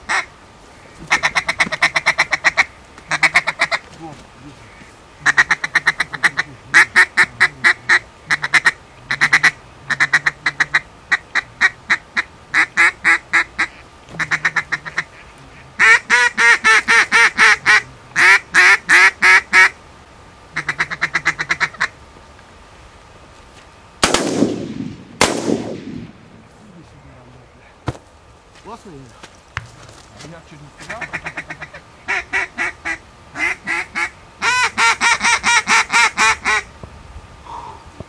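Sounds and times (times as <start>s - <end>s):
duck call quacks: 0.1s - 0.3s, 1.0s - 3.8s, 4.7s - 19.8s, 20.6s - 22.0s, 30.8s - 36.7s
shotgun firing: 24.0s - 26.2s.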